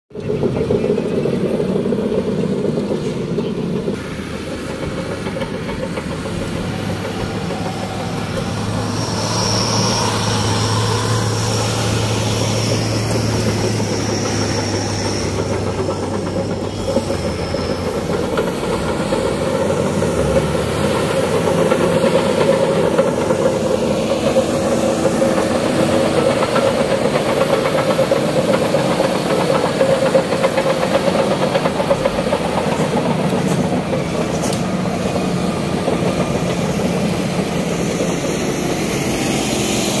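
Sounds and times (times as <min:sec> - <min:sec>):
bulldozer diesel engine under load: 0:00.1 - 0:40.0
steel tracks clattering: 0:00.1 - 0:40.0
high thin whine: 0:06.8 - 0:19.8.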